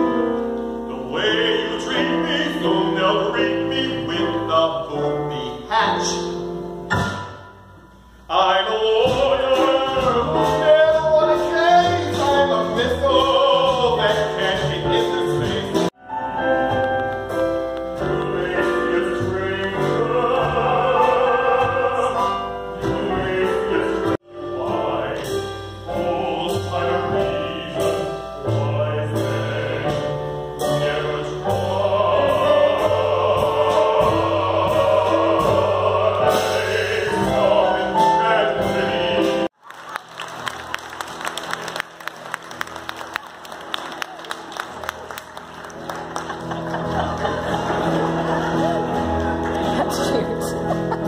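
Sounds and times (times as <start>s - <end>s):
operatic singing with accompaniment: 0.8s - 6.5s, 8.3s - 15.9s, 18.0s - 39.5s
audience applause: 39.6s - 50.3s.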